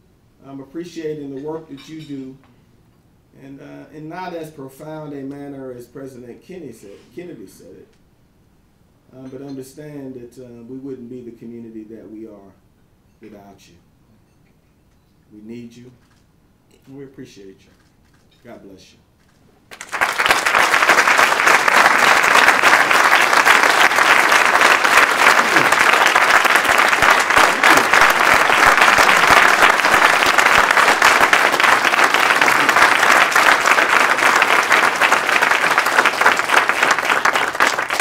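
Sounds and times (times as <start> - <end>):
audience applauding: 19.7 - 38.0.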